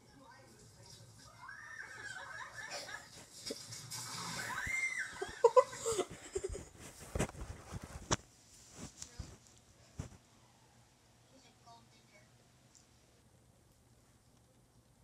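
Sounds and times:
children laughing: 1.4s - 7.0s
child shrieking: 4.4s - 5.5s.

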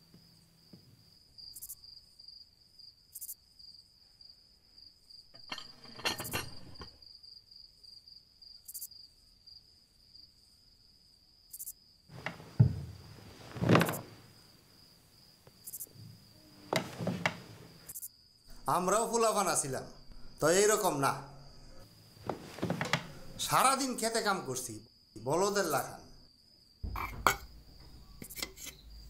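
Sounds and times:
cricket chirping: 0.0s - 29.0s.

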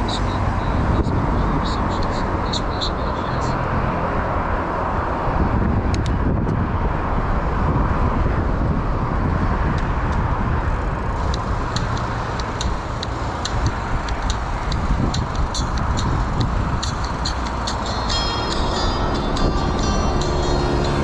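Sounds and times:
traffic: 0.0s - 21.0s
wind and road noise: 0.0s - 21.0s
light sharp ticks: 11.2s - 17.9s.

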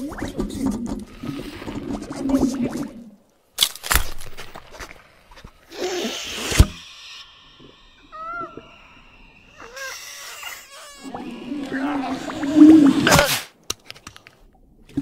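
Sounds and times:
squeaky cries bending in pitch: 7.9s - 12.4s.

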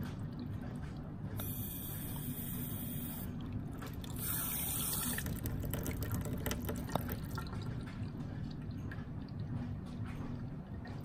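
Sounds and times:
miniature toilet flushing: 0.0s - 11.0s
water dripping: 3.4s - 9.6s.

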